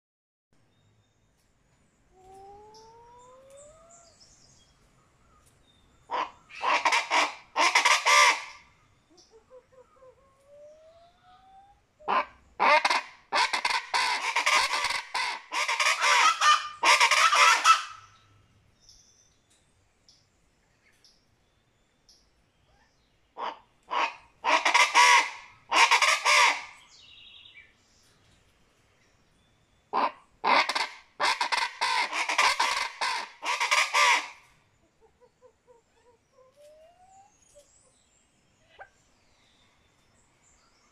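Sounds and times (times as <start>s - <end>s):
bird harsh repeated calls: 6.0s - 9.3s, 12.1s - 18.3s, 22.8s - 27.1s, 29.9s - 34.5s.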